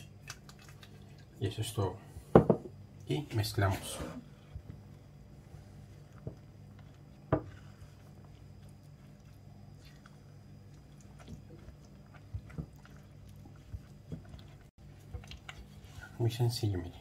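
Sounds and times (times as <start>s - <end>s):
spatula stirring in a bowl: 5.4s - 16.5s.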